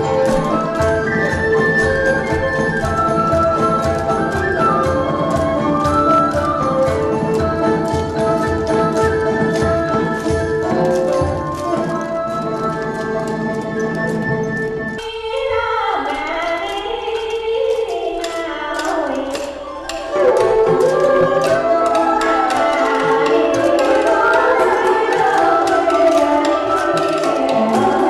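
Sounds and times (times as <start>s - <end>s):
struck percussion: 0.0s - 28.0s
person singing: 15.0s - 28.0s.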